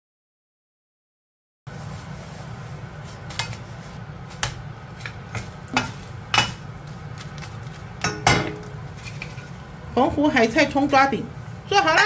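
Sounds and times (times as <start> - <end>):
spatula knocking and scraping wok: 4.4 - 10.3.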